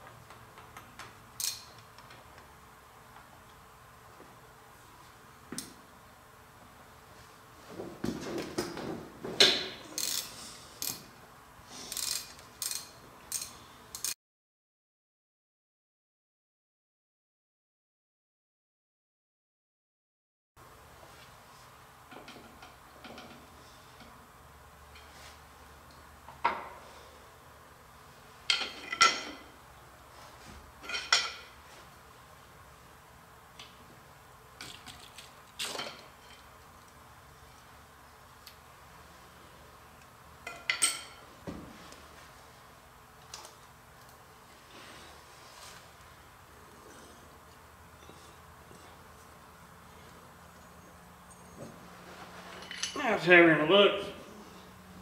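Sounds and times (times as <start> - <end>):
metal tools clinking and scraping: 11.9 - 14.2, 28.5 - 29.5, 30.8 - 31.6, 40.4 - 41.3, 50.6 - 53.0
steel tools clanking on metal: 52.6 - 53.0.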